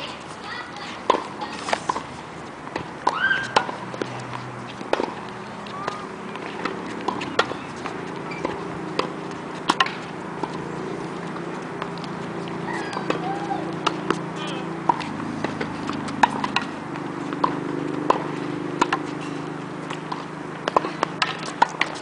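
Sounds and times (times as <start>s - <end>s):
racquet hitting tennis ball: 0.0s - 22.0s
tennis ball bouncing: 0.0s - 22.0s
sneaker squeaks on court: 6.8s - 8.7s.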